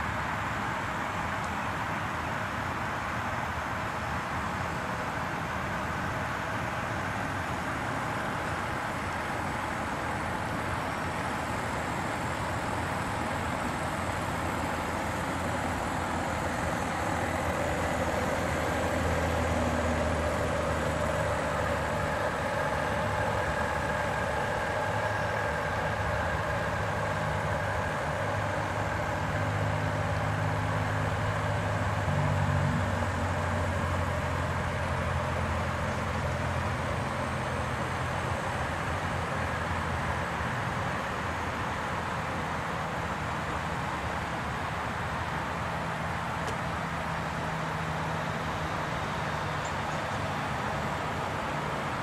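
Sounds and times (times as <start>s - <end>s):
model steam engine running: 2.5s - 32.1s.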